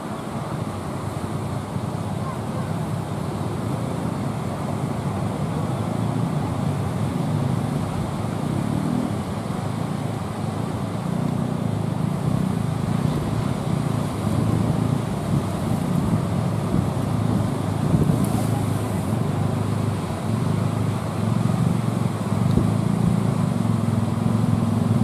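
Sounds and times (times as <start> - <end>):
heavy surf breaking: 11.6 - 24.2
wind rumbling on microphone: 11.9 - 20.6.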